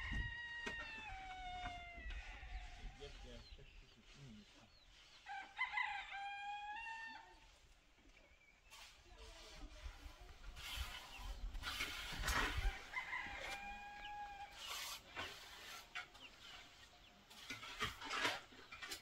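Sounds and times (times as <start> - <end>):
rooster crowing: 5.3 - 7.3, 12.6 - 14.6
rustling noise with low rumble: 7.7 - 19.0
chickens clucking: 10.5 - 19.0.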